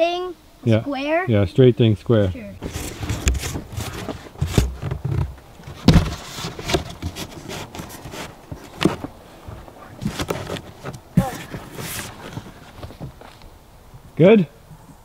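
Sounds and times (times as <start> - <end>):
dull knocks and thuds: 2.6 - 13.2
cardboard scraping and crackling: 2.6 - 13.4.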